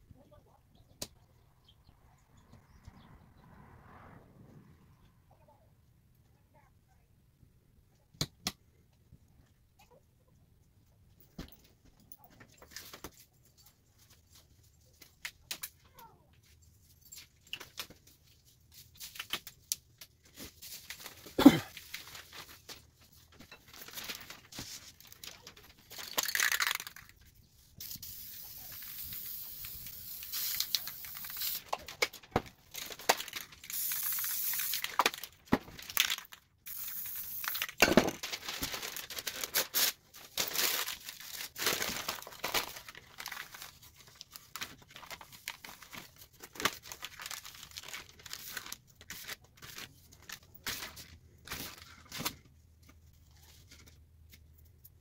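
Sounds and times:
magazine page crinkling: 0:18.9 - 0:27.1, 0:28.1 - 0:52.5
can being handled: 0:26.0 - 0:27.1
spray paint can hissing: 0:27.8 - 0:31.7, 0:33.6 - 0:35.0, 0:36.6 - 0:37.8.

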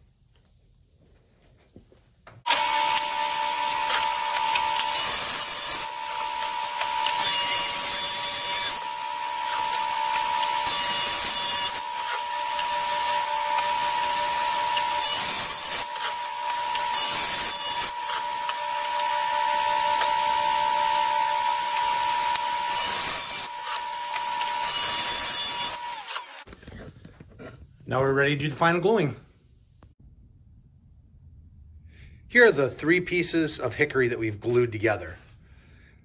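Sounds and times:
saw cutting wood: 0:02.5 - 0:26.5
table saw whine: 0:02.5 - 0:26.5.

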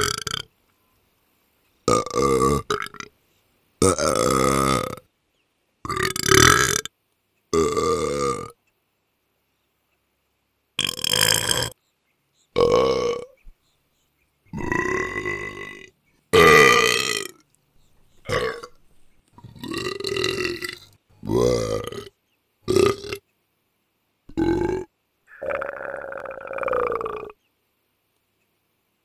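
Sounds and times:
loud burps: 0:00.0 - 0:00.5, 0:01.9 - 0:03.1, 0:03.8 - 0:05.1, 0:05.9 - 0:06.9, 0:07.5 - 0:08.6, 0:10.8 - 0:11.8, 0:12.6 - 0:13.4, 0:14.5 - 0:17.4, 0:18.2 - 0:18.8, 0:19.4 - 0:22.1, 0:22.7 - 0:23.2, 0:24.3 - 0:27.4.

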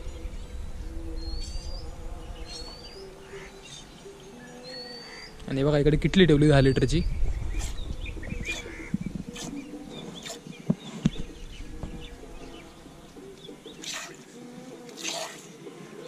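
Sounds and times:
small birds chirping: 0:00.0 - 0:16.0
milk squirting into steel bowl: 0:13.8 - 0:15.5.

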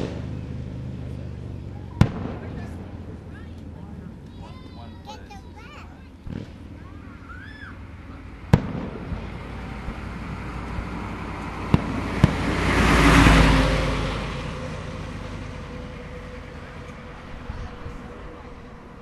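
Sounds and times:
car passing by: 0:00.0 - 0:19.0
firework bangs: 0:01.7 - 0:14.3.

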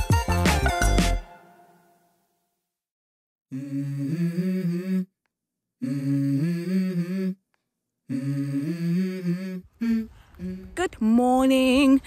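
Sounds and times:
person humming a melody: 0:03.5 - 0:05.2, 0:05.8 - 0:07.4, 0:08.1 - 0:10.8.

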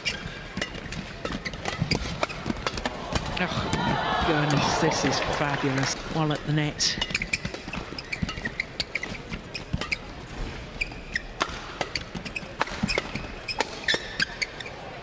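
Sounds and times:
rackets hitting shuttlecock: 0:00.0 - 0:05.2, 0:10.8 - 0:14.4
shoes squeaking on court: 0:00.0 - 0:15.0.

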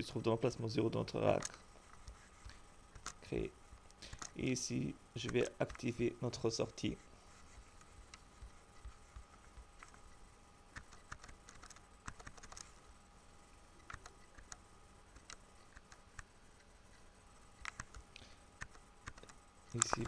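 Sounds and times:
faint steady hum: 0:00.0 - 0:20.0
computer keys and mouse clicking: 0:01.4 - 0:03.2, 0:05.2 - 0:05.9, 0:10.7 - 0:12.7, 0:13.8 - 0:16.3, 0:17.6 - 0:18.0, 0:18.6 - 0:20.0.

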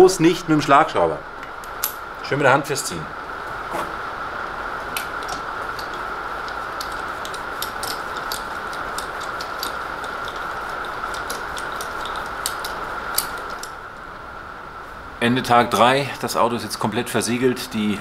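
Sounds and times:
steady background hum: 0:00.0 - 0:18.0
hand wrench clicking: 0:05.0 - 0:13.8.

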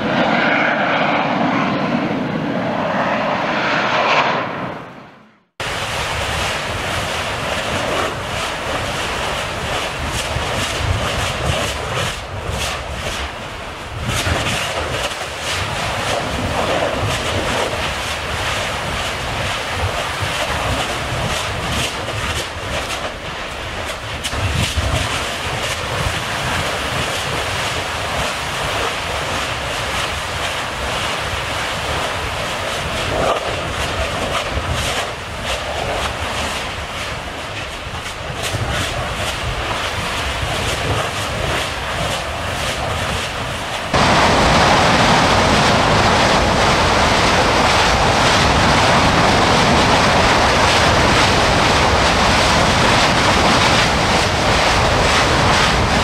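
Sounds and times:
low rumble: 0:00.0 - 0:05.6
lava fountaining and venting gas: 0:05.6 - 0:56.0.

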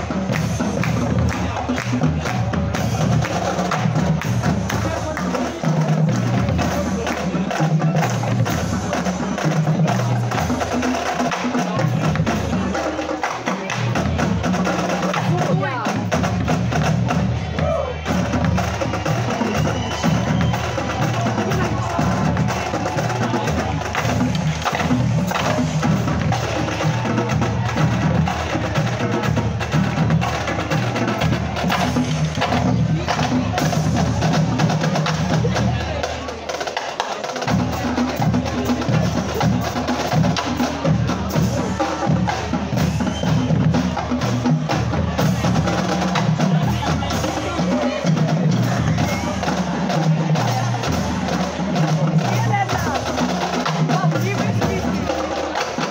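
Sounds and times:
marching drumline: 0:00.0 - 0:55.9.

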